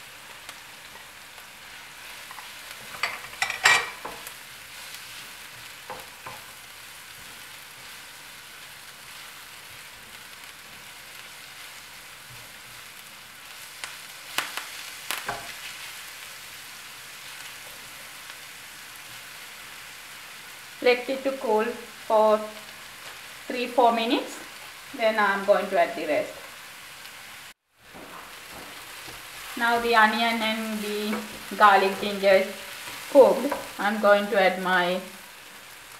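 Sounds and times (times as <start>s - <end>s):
vegetables sizzling in oil: 0.0s - 35.9s.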